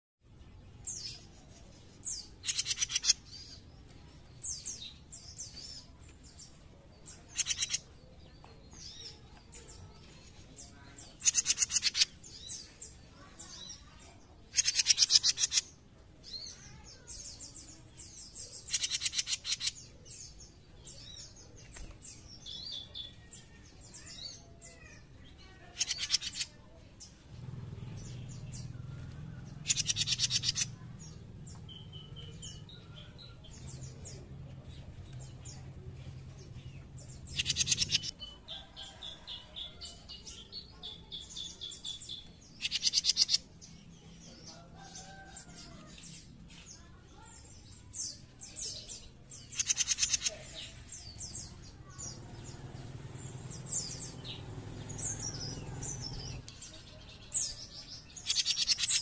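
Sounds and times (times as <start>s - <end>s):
bird twittering: 2.2s - 3.3s, 14.5s - 15.7s.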